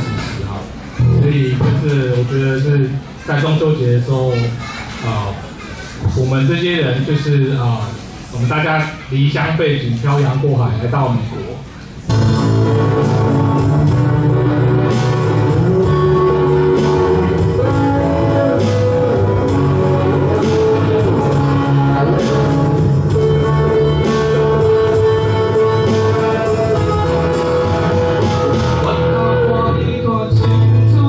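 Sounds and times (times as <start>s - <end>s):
drum strokes: 12.1s - 29.4s
live rock band playing: 12.1s - 31.0s
sustained guitar melody: 12.1s - 31.0s.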